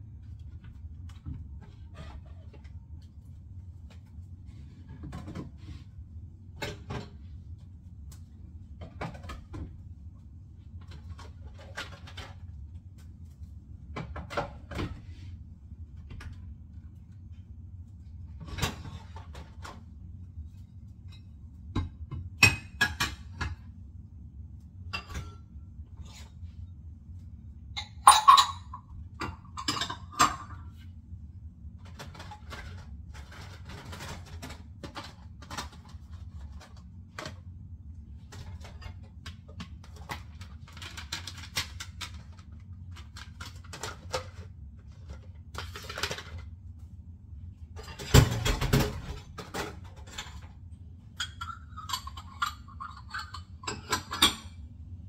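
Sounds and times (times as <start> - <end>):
dishes and cutlery clinking: 27.8 - 30.7, 51.2 - 54.6.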